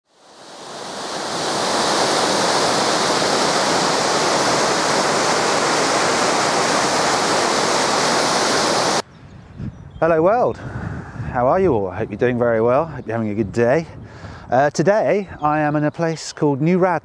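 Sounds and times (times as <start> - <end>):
stream and waterfall rushing: 0.0 - 9.0.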